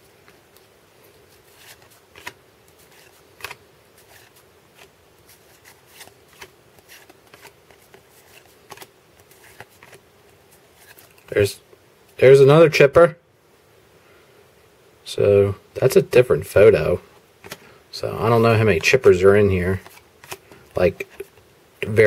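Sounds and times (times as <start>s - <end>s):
cards flicking and sliding: 1.4s - 10.0s, 19.7s - 21.3s.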